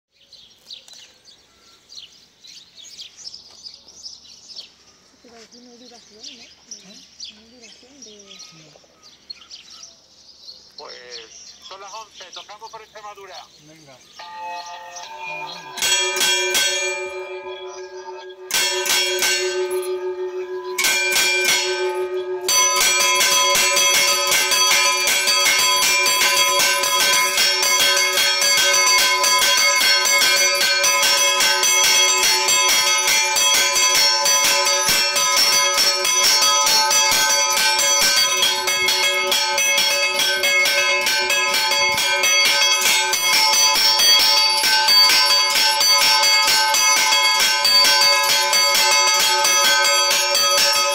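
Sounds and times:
church bells ringing: 14.1 - 50.9.

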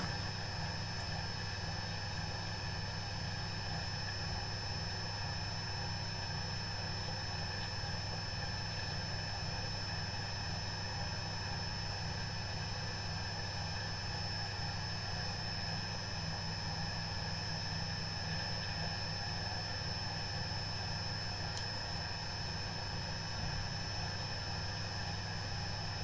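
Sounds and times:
potter's wheel motor hum: 0.0 - 1.1.

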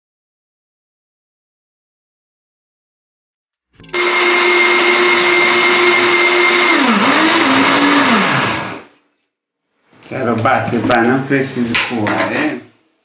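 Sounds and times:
blender motor humming: 3.8 - 8.9.

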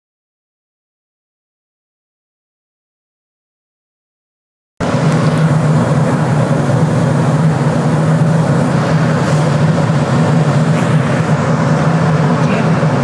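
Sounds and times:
aircraft cabin noise: 4.8 - 13.0.

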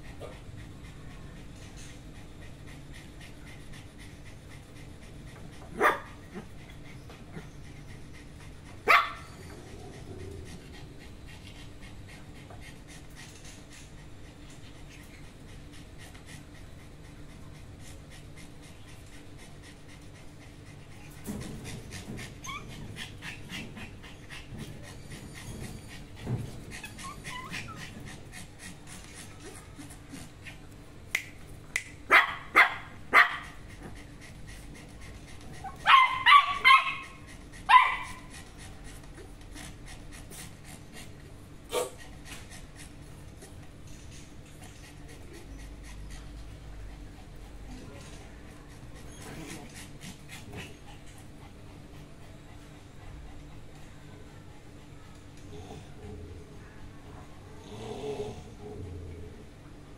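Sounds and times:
small dogs yapping: 5.5 - 10.7, 21.2 - 30.3, 32.1 - 34.2, 35.5 - 39.0, 41.7 - 42.5
dog whining: 22.4 - 23.1, 24.2 - 28.2.

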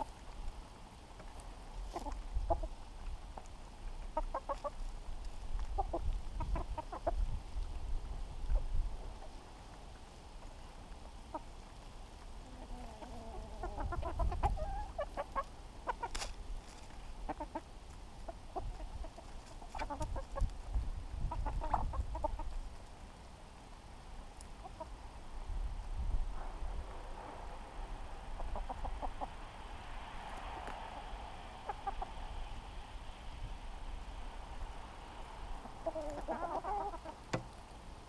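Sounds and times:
hens clucking: 1.3 - 2.9, 4.0 - 4.9, 5.6 - 7.8, 11.0 - 22.7, 24.5 - 25.1, 28.2 - 29.4, 30.4 - 32.7, 35.5 - 37.5.

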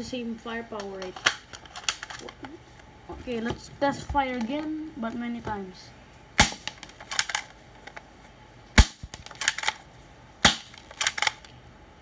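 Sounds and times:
toy pistol shots snapping: 6.4 - 7.5, 8.8 - 9.8, 10.4 - 11.5.

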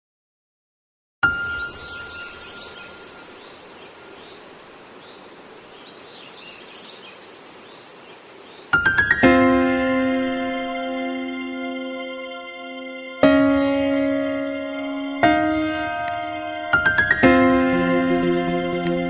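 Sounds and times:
held piano chord: 8.8 - 19.0
rising keyboard notes: 8.8 - 19.0.

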